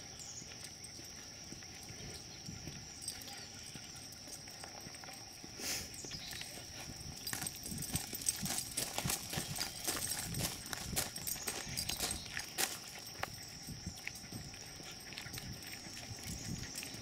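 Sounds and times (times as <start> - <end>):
footsteps crunching on gravel: 4.1 - 17.0.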